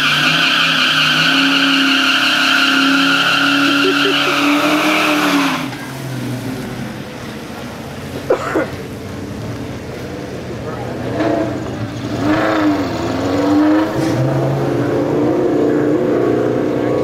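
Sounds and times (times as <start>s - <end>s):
tyres squealing: 0.0s - 6.3s
car engine at high revs: 0.0s - 17.0s.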